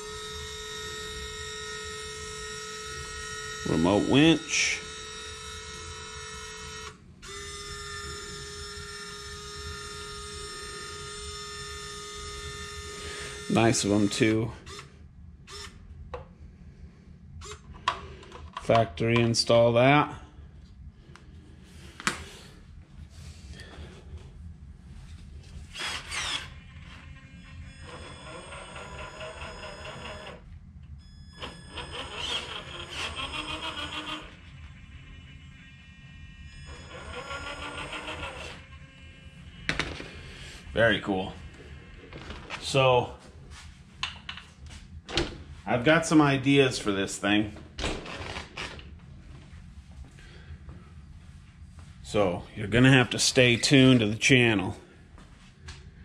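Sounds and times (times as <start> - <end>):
electric winch motor whining: 0.0 - 15.9, 25.6 - 43.2.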